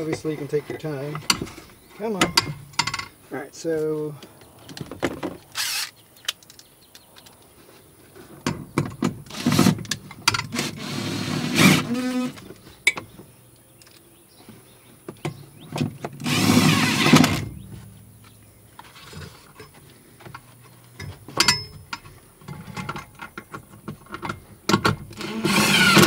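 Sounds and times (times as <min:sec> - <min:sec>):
handling clicks and rustling: 0:00.0 - 0:10.8, 0:11.9 - 0:25.2
cordless drill spinning: 0:05.5 - 0:06.0, 0:16.2 - 0:17.2, 0:25.2 - 0:26.0.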